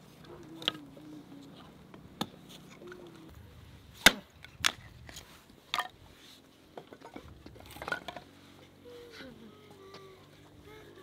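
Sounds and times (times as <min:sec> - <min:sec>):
hatchet chopping wood: 0:04.0 - 0:04.8.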